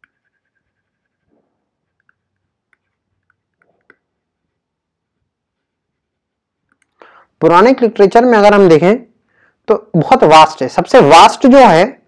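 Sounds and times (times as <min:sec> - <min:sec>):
stylus clicking while writing: 0:00.0 - 0:07.0.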